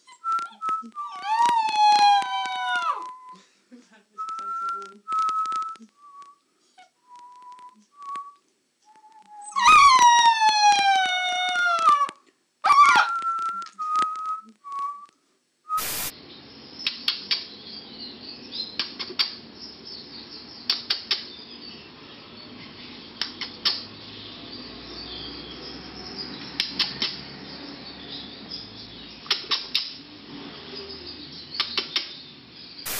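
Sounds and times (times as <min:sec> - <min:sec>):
puppy whimpering: 0:00.0 - 0:03.3
puppy howling: 0:01.0 - 0:03.2, 0:09.4 - 0:13.4
puppy yelping: 0:01.0 - 0:03.2, 0:09.4 - 0:13.2
faint hiss: 0:13.4 - 0:17.5.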